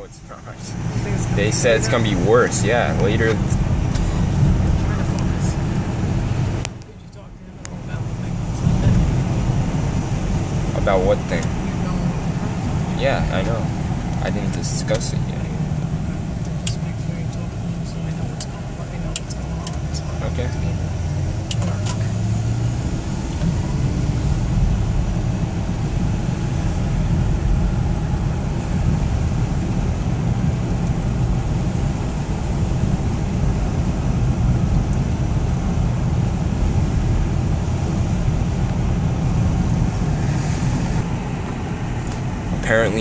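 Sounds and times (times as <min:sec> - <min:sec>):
engine and road rumble: 0:00.0 - 0:43.0
rain on a car: 0:24.3 - 0:43.0
wet tyres hissing: 0:27.8 - 0:43.0.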